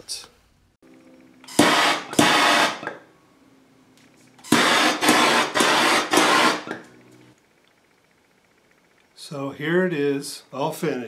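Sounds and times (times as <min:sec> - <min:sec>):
gas torch hissing: 0:01.5 - 0:02.8.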